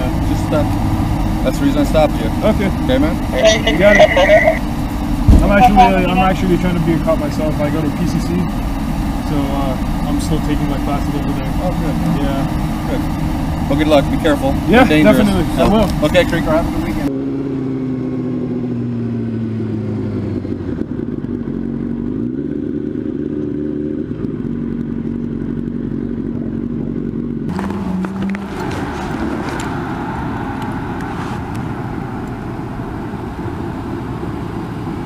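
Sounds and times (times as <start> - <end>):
motorcycle engine riding: 0.0 - 35.0.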